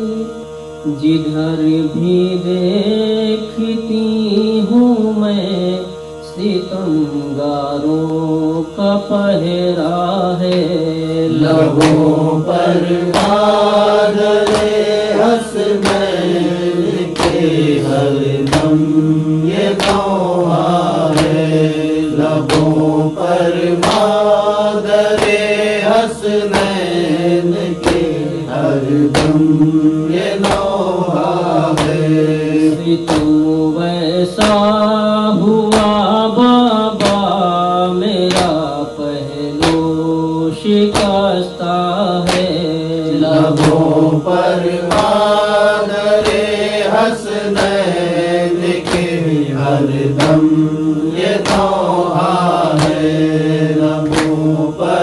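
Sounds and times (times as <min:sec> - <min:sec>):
held vocal drone: 0:00.0 - 0:55.0
man chanting a lament: 0:00.0 - 0:55.0
sharp percussive beats: 0:11.3 - 0:33.7, 0:34.3 - 0:37.6, 0:38.2 - 0:38.8, 0:39.6 - 0:40.1, 0:40.7 - 0:41.4, 0:42.1 - 0:55.0.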